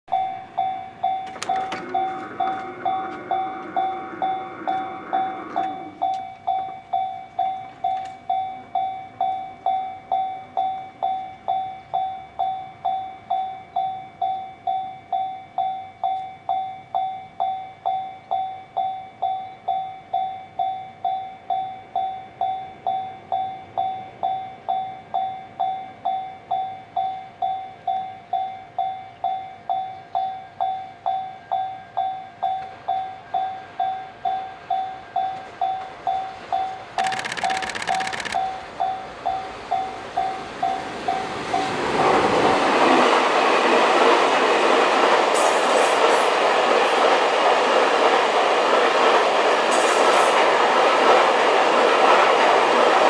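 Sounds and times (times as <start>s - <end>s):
level crossing bell ringing: 0.1s - 14.2s.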